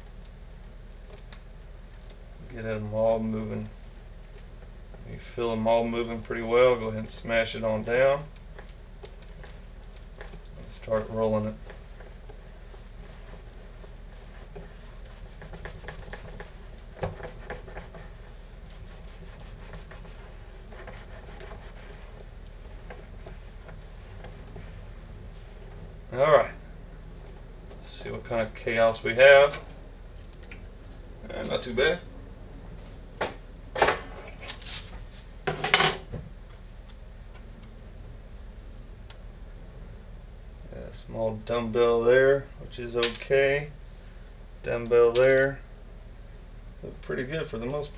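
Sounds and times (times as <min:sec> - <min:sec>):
plastic roller scraping: 0:07.4 - 0:26.6.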